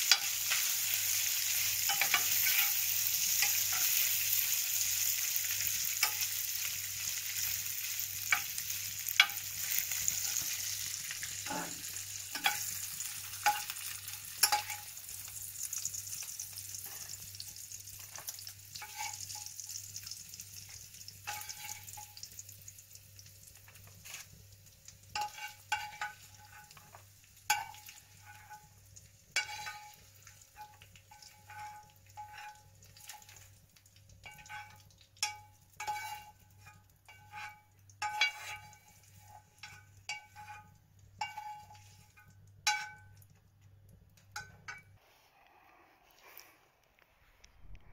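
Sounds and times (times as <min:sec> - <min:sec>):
fork clinking against a pan: 0:00.0 - 0:04.3, 0:05.2 - 0:06.7, 0:08.2 - 0:14.9, 0:18.1 - 0:19.6, 0:21.2 - 0:22.2, 0:25.1 - 0:28.7, 0:29.4 - 0:33.4, 0:34.2 - 0:43.2
fork scraping a pan: 0:00.0 - 0:15.0, 0:16.5 - 0:17.2, 0:18.0 - 0:19.8, 0:20.7 - 0:22.3, 0:23.6 - 0:24.4, 0:25.1 - 0:33.5, 0:34.2 - 0:43.1
bacon sizzling in a frying pan: 0:00.0 - 0:44.8.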